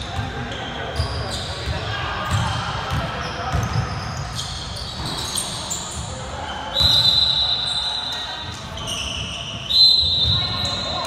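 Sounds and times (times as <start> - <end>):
sneakers squeaking: 0.0 - 11.0
basketball bouncing: 2.3 - 4.0
referee's whistle: 6.5 - 11.0.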